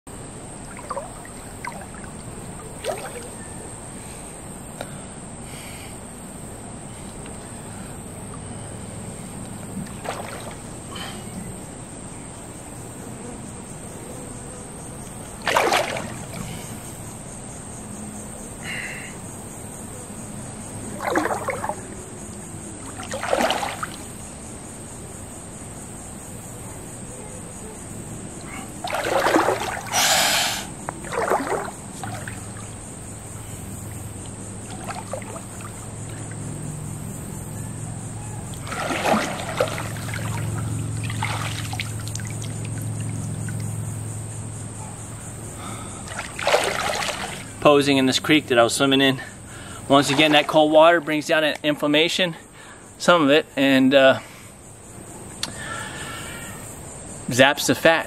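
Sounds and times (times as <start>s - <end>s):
water sloshing around legs: 0.6s - 3.5s, 9.4s - 11.2s, 15.2s - 16.9s, 20.8s - 24.2s, 28.4s - 30.1s, 30.8s - 36.9s, 38.5s - 43.8s, 45.8s - 48.3s, 49.9s - 51.0s.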